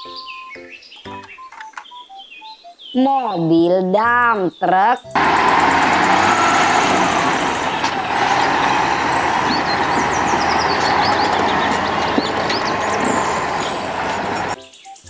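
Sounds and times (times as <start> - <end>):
diesel truck engine running: 5.2 - 14.6
tyre and road noise: 5.2 - 14.6.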